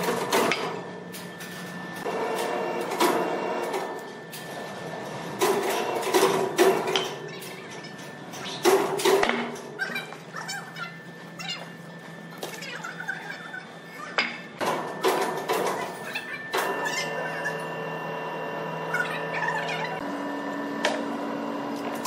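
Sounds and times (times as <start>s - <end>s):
sawmill machinery hum: 1.8s - 6.2s, 16.4s - 22.0s.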